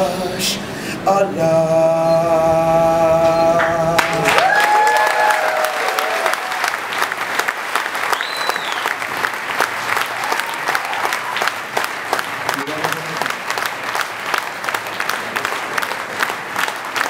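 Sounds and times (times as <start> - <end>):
audience applauding and cheering: 3.6 - 17.0
whistle: 8.1 - 8.9.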